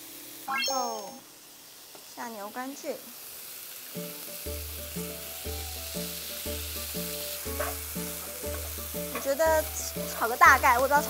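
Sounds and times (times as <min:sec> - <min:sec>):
food sizzling in a frying pan: 0:00.0 - 0:11.0
background music with steady beat: 0:04.0 - 0:10.2
spatula stirring: 0:07.1 - 0:10.4.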